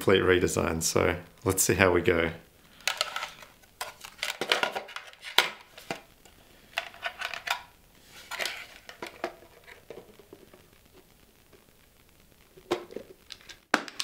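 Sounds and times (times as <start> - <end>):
plastic parts clacking and scraping: 2.8 - 10.7, 12.6 - 14.0.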